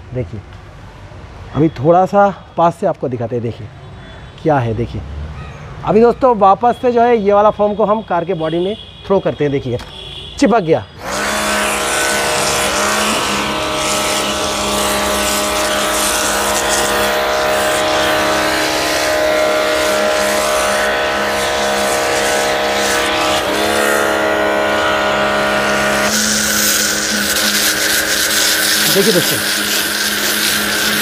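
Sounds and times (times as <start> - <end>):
pressure washer motor running: 11.0 - 31.0
foam spray hissing: 11.1 - 31.0.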